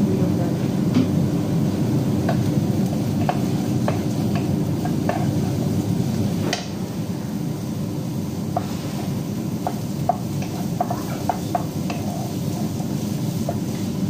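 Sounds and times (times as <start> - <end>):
steady low rumble: 0.0 - 14.0
spatula tapping pot side: 2.2 - 2.5, 3.2 - 5.3, 9.6 - 13.7.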